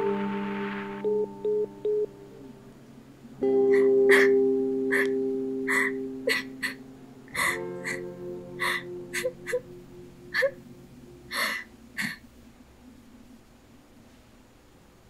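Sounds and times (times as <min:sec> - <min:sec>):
soft sustained music: 0:00.0 - 0:14.1
woman sobbing: 0:03.8 - 0:09.7, 0:10.3 - 0:10.6, 0:11.3 - 0:12.2.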